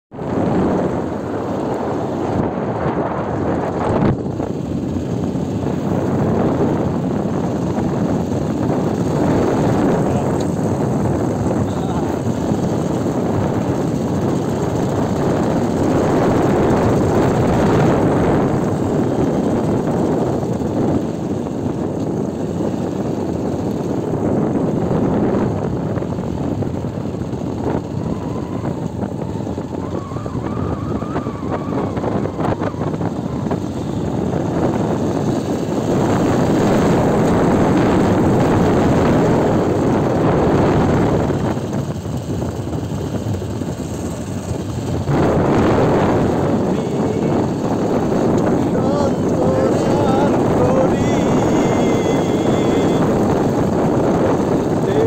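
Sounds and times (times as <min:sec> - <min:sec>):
motorcycle engine running: 0:00.1 - 0:55.0
wind buffeting microphone: 0:00.1 - 0:55.0
faint whine: 0:44.0 - 0:55.0.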